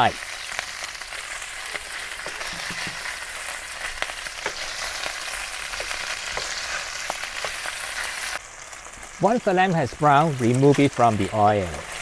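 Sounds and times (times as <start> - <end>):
meat sizzling in hot oil: 0.0 - 12.0
oil popping: 0.7 - 8.1.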